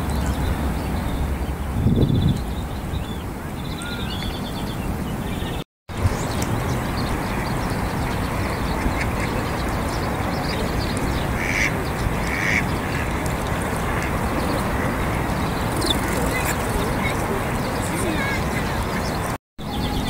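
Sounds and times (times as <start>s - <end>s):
steady rushing noise: 5.9s - 20.0s
ducks quacking: 8.1s - 9.7s, 11.2s - 19.3s.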